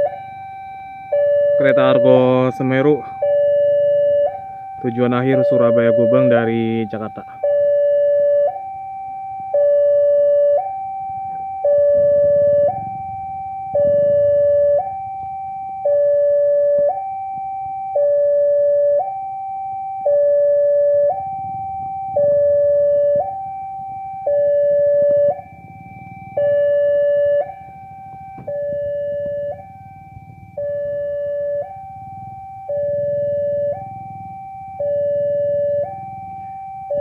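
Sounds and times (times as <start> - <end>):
two-tone crossing alarm: 0.0 - 37.0
faint low rumble: 9.5 - 37.0.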